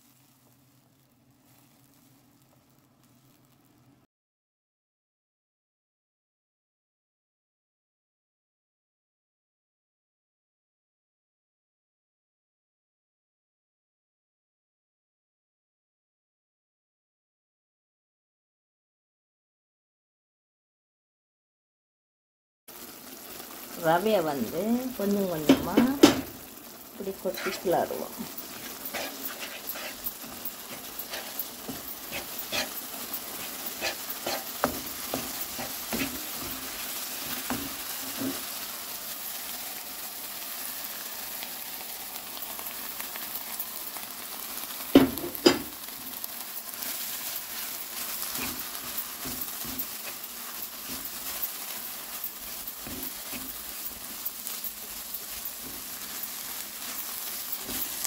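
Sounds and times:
vegetables sizzling in oil: 0.0s - 4.0s, 22.7s - 58.0s
wooden spatula scraping a pan: 24.4s - 38.8s, 44.6s - 58.0s.

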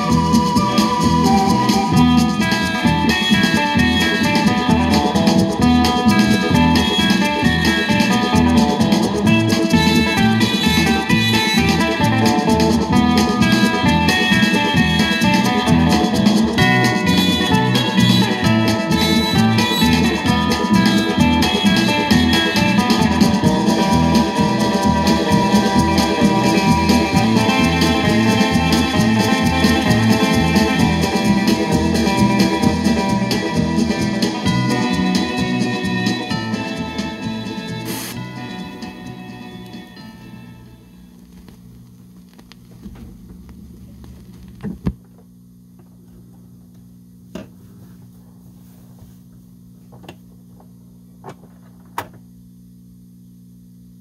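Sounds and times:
rock and roll guitar and drums: 0.0s - 45.0s
low electrical hum: 4.6s - 54.0s
record clicks: 41.1s - 45.2s.

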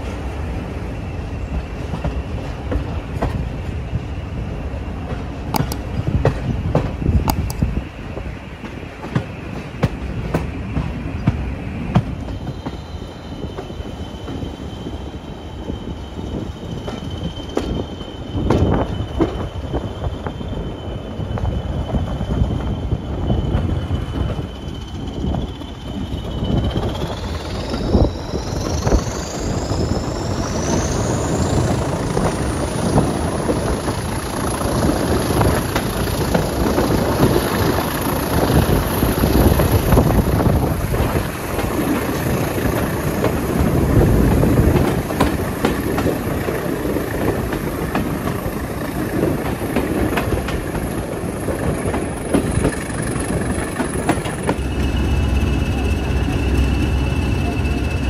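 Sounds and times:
diesel locomotive engine: 0.0s - 58.0s
train running on track: 0.0s - 58.0s
rising whine: 12.7s - 44.8s, 48.2s - 58.0s
diesel locomotive idling: 22.6s - 58.0s.

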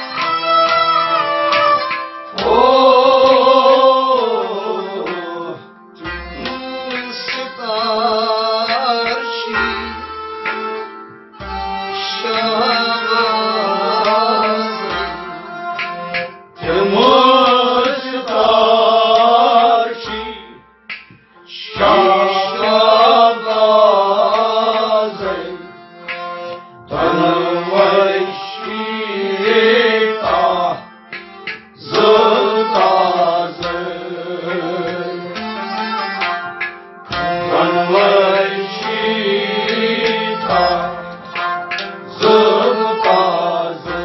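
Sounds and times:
harmonium: 0.0s - 44.0s
men singing: 2.4s - 5.7s, 6.4s - 10.0s, 12.0s - 15.6s, 16.6s - 20.6s, 21.5s - 25.8s, 26.9s - 30.9s, 31.8s - 35.4s, 37.2s - 41.3s, 42.0s - 44.0s
plucked lute: 29.4s - 44.0s.

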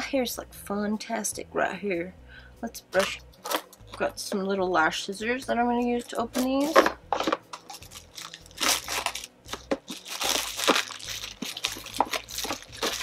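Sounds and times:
paper packaging rustling: 6.4s - 13.0s.

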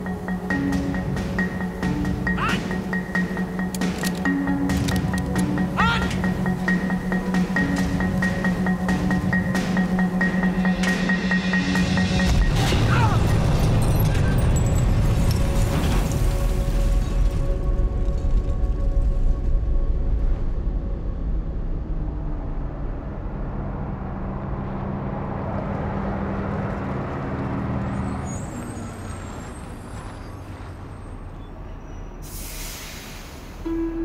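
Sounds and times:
bus engine rumbling: 0.0s - 16.4s, 20.8s - 34.0s
air brakes hissing: 32.2s - 33.6s.

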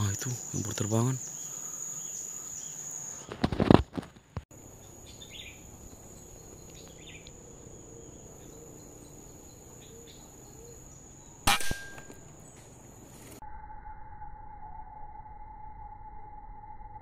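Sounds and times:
insect drone: 0.0s - 17.0s
air rifle shot: 11.4s - 12.3s.

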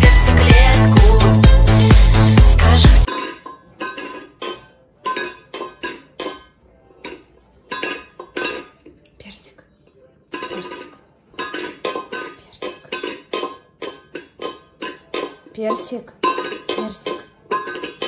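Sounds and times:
metal bowl clanking on tiles: 0.0s - 18.0s.

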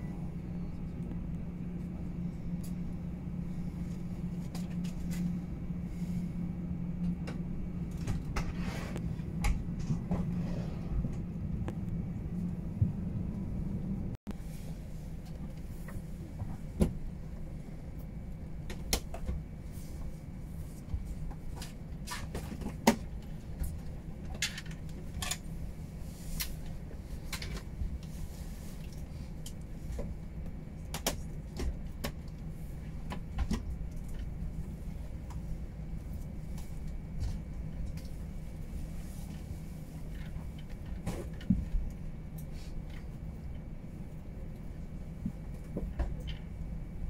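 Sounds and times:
airplane cabin hum: 0.0s - 47.0s
clicks and knocks in cabin: 21.3s - 25.5s.

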